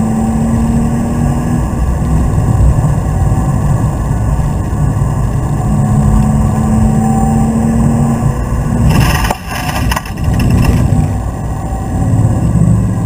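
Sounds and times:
tyre and road noise: 0.8s - 13.0s
car engine pulling hard: 4.9s - 13.0s
tyres clattering over track edge: 8.9s - 11.1s.

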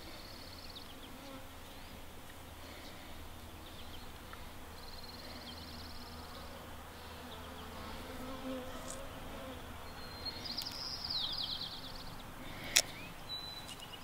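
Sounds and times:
flying insect buzzing: 5.1s - 9.8s.

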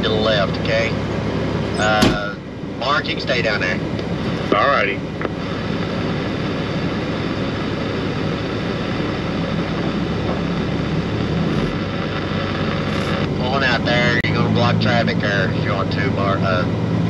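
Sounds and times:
truck diesel engine idling: 0.0s - 17.0s.

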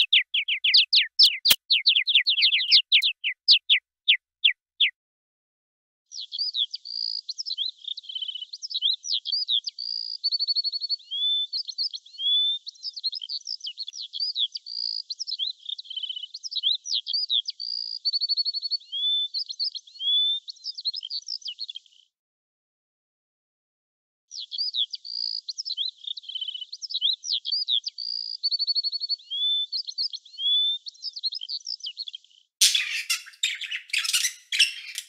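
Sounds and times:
songbird singing: 0.0s - 5.0s, 24.3s - 35.0s.

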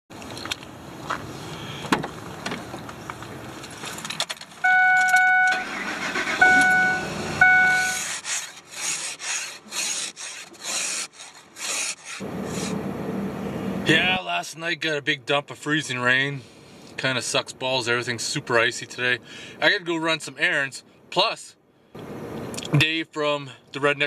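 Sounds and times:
loud steady beeps: 4.6s - 8.1s
ice scraping off window: 7.8s - 12.8s.

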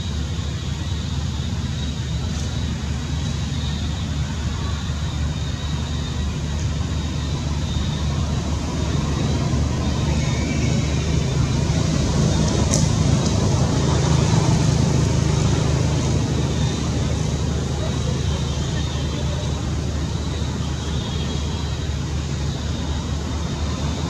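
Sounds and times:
low engine rumble: 0.0s - 24.0s.

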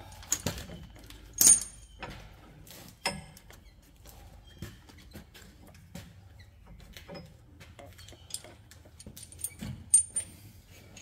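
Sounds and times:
metal hardware clinking: 1.4s - 2.0s, 8.1s - 10.4s.

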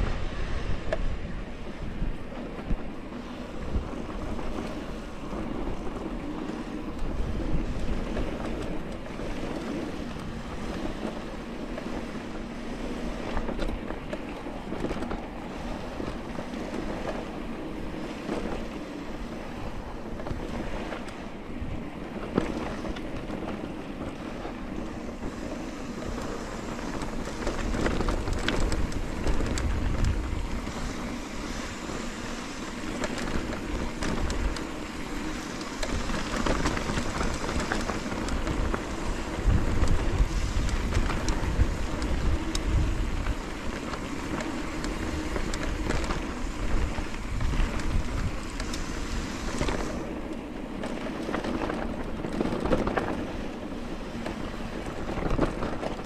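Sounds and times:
wind buffeting microphone: 0.0s - 56.0s
faint ticks: 25.1s - 53.2s.

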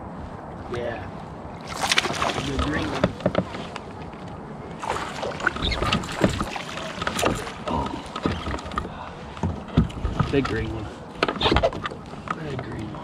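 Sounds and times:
water splashing: 1.6s - 3.2s, 4.8s - 8.8s.

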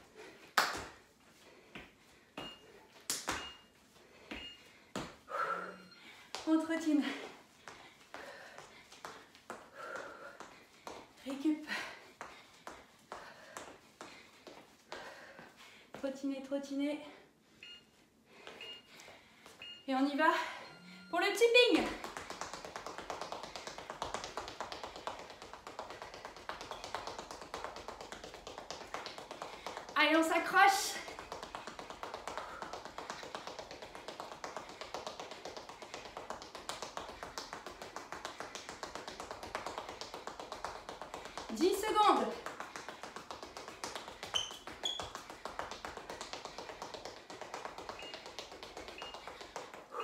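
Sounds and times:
sneakers tapping on tiled floor: 21.8s - 30.0s, 30.9s - 50.0s
shoe squeaks: 44.0s - 45.4s, 47.8s - 50.0s.

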